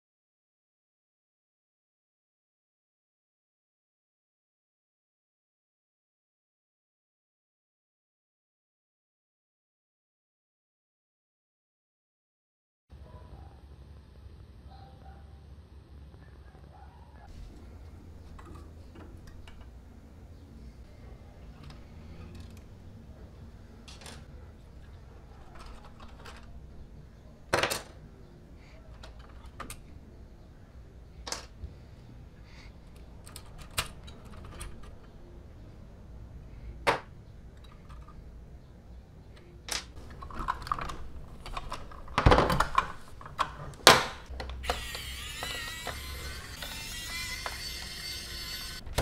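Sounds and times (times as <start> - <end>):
small plastic parts clicking: 23.8 - 26.7, 39.4 - 46.8
electric screwdriver running: 44.6 - 49.0.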